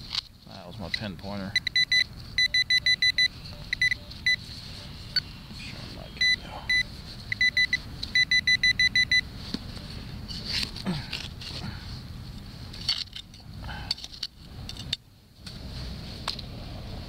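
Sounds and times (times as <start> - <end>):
metal detector beeping: 0.8 - 5.3, 6.2 - 9.3.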